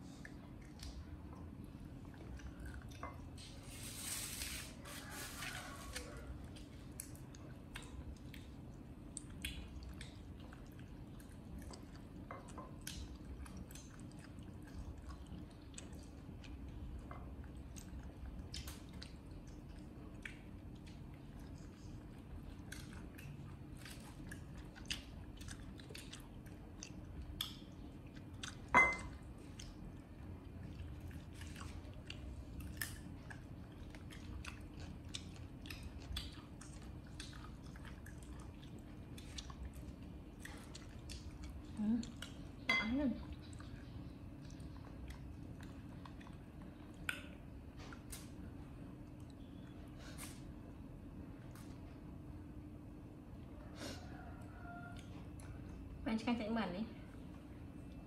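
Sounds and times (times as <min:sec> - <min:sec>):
monkeys chewing food: 0:17.6 - 0:48.6.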